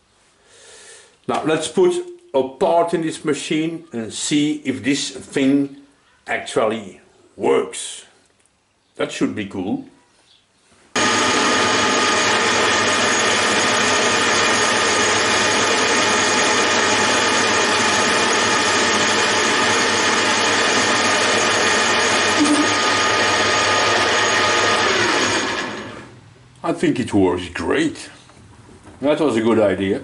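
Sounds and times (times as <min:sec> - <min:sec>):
metal lathe whirring: 0:11.0 - 0:26.2.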